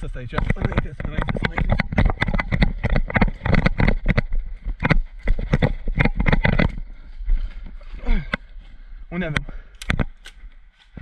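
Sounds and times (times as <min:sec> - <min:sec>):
wind rumble on microphone: 0:00.0 - 0:07.5
gear rattling: 0:00.0 - 0:08.5
running footsteps on wet grass: 0:10.5 - 0:11.0.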